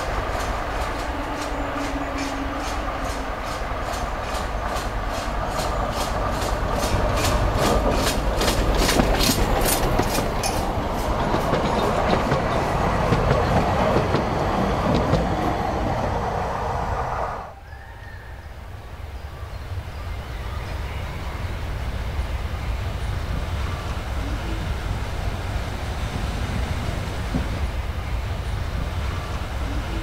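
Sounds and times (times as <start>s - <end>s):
carriages rumbling over rail joints: 0.0s - 16.8s, 19.0s - 30.0s
steam locomotive chuffing: 0.0s - 17.4s.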